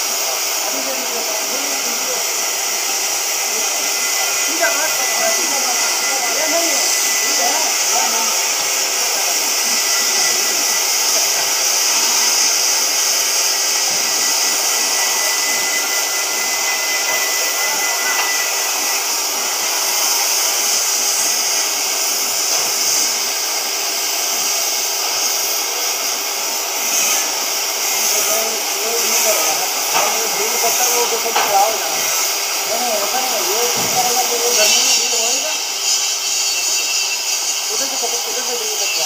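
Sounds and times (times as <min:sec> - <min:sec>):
cutting torch hissing: 0:00.0 - 0:39.0
faint high whine: 0:03.4 - 0:21.4, 0:36.3 - 0:39.0.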